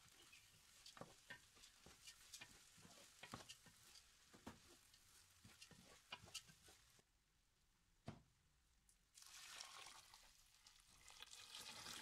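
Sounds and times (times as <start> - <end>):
spatula scraping a pot: 0.0 - 6.9
light sizzle: 0.0 - 7.0, 9.1 - 12.0.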